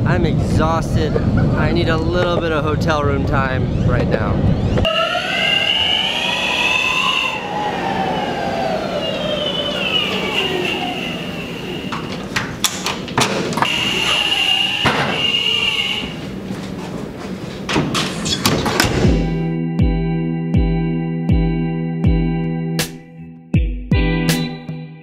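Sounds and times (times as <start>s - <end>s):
electric skateboard motor whine: 4.5s - 12.1s, 13.6s - 16.1s
steady high tone: 4.5s - 12.4s, 13.6s - 16.3s
door unlocking and opening: 11.9s - 13.7s.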